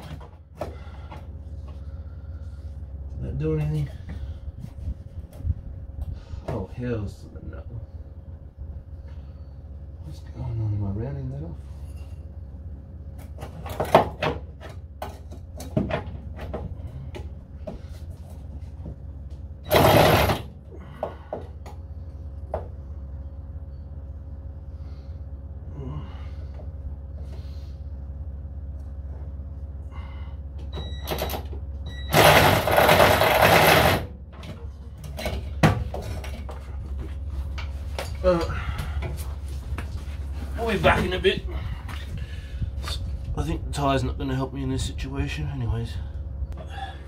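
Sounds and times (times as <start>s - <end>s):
steady low hum: 0.0s - 47.0s
loud noisy bursts: 19.6s - 20.5s.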